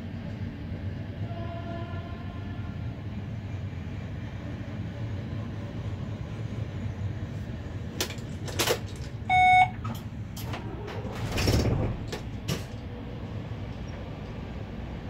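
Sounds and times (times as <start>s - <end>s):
freight train rumble: 0.0s - 15.0s
short electronic beep: 9.3s - 9.8s.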